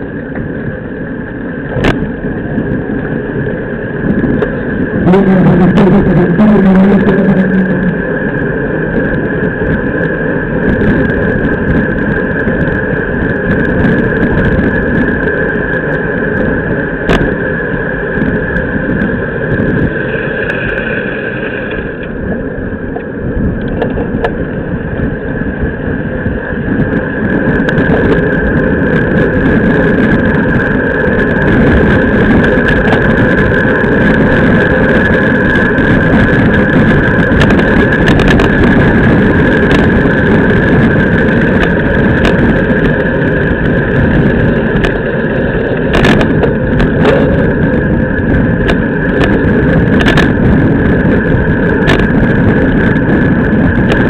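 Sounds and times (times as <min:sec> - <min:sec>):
wind buffeting microphone: 0:00.0 - 0:54.0
thin high hum: 0:01.5 - 0:09.9
sharp bicycle clicks: 0:25.8 - 0:54.0.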